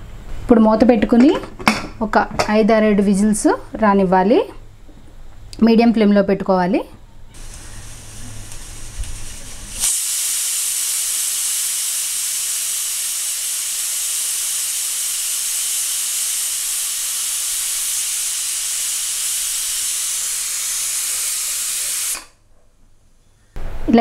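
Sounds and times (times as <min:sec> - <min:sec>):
pressure cooker steam hissing: 0:07.4 - 0:22.4.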